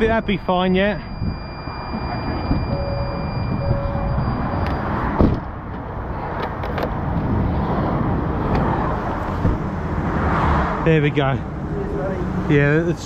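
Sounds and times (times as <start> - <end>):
thin high whine: 0.0 - 5.0
short beeps: 0.0 - 5.2
motorway traffic rumble: 0.0 - 13.0
wind: 0.0 - 13.0
sharp thump: 5.2 - 5.5.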